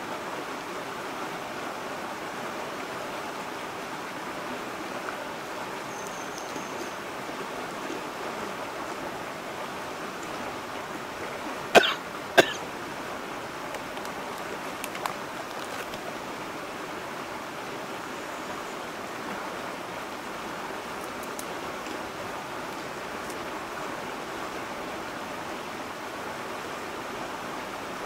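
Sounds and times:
stream rushing over rocks: 0:00.0 - 0:28.0.

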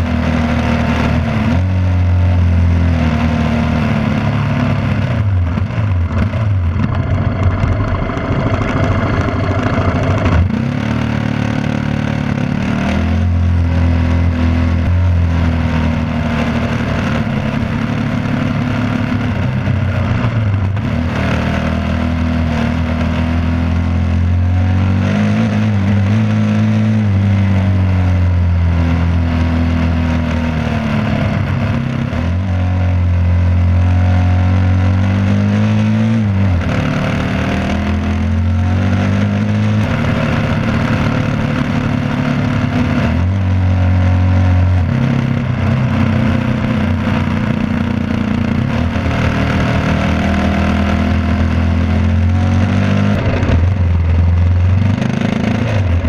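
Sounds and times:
motorcycle engine running: 0:00.0 - 0:56.0
wind noise: 0:04.8 - 0:11.7.

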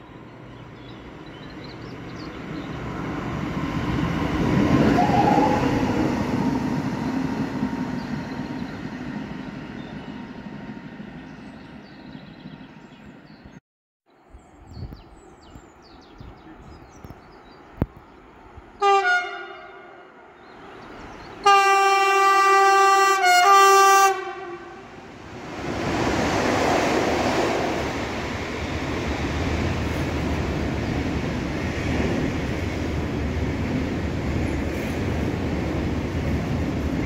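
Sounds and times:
train rolling rumble: 0:00.2 - 0:13.2, 0:24.7 - 0:37.0
locomotive horn blasts: 0:18.8 - 0:20.1, 0:21.4 - 0:25.0.

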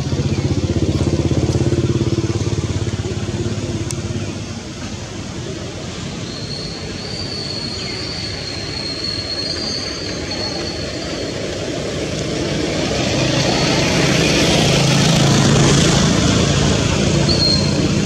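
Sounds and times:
low engine hum: 0:00.0 - 0:06.2
vehicle rushing noise: 0:11.3 - 0:18.0.

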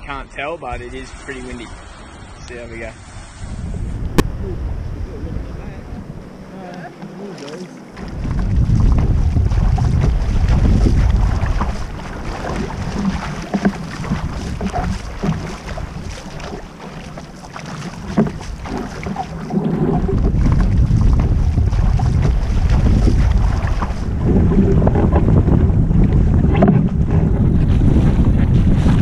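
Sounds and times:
wind buffeting microphone: 0:00.1 - 0:29.0
paddle strokes splashing water: 0:06.0 - 0:29.0
water slapping board: 0:06.9 - 0:29.0.

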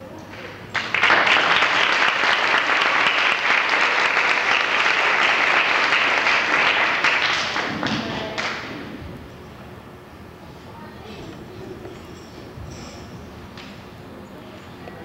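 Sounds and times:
audience applauding: 0:00.4 - 0:08.7.

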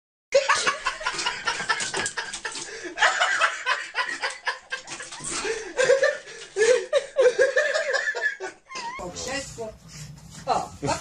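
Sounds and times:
people laughing: 0:00.4 - 0:09.0.

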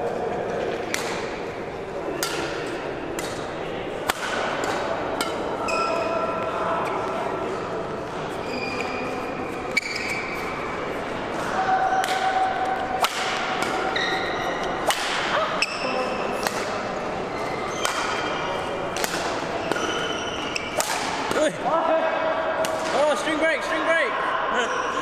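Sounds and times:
shuttlecock struck by racket: 0:00.9 - 0:01.4, 0:02.1 - 0:05.5, 0:13.0 - 0:13.9, 0:14.8 - 0:15.3, 0:18.9 - 0:19.9, 0:20.7 - 0:21.5
court shoes squeaking: 0:04.4 - 0:21.6.

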